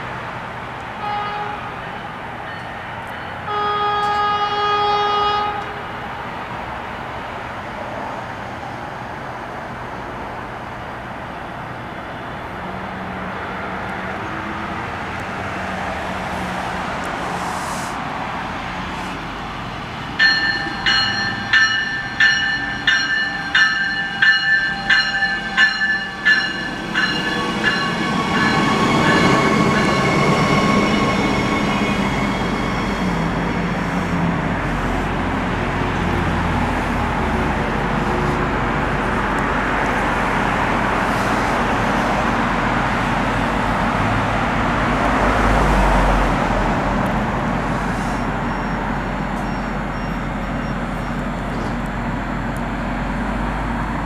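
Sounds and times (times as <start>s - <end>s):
train rumble: 0.0s - 54.0s
train horn blast: 1.0s - 2.1s, 3.4s - 6.0s
bell ringing: 20.2s - 30.4s.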